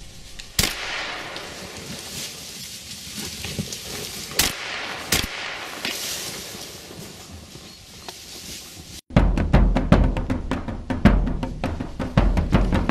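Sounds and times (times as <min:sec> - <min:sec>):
shotgun shots: 0:00.6 - 0:01.7, 0:04.4 - 0:06.1.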